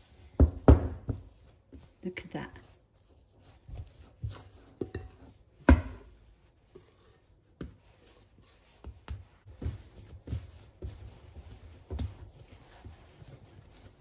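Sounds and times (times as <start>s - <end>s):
dough thumping on countertop: 0.3s - 1.9s, 3.6s - 6.2s.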